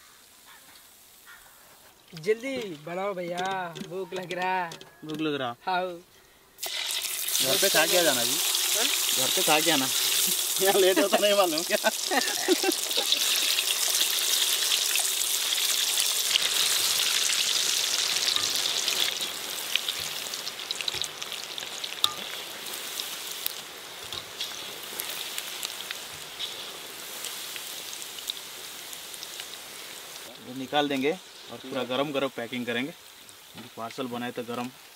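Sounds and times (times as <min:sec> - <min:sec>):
frying oil sizzling: 0:06.6 - 0:34.9.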